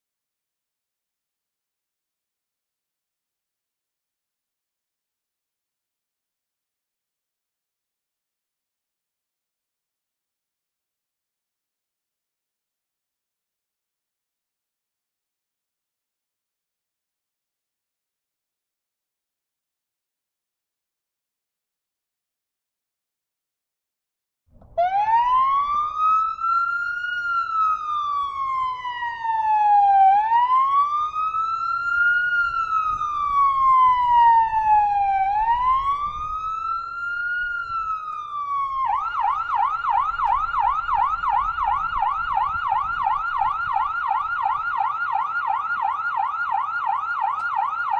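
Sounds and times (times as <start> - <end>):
electronic siren wailing and yelping: 24.7 - 47.9.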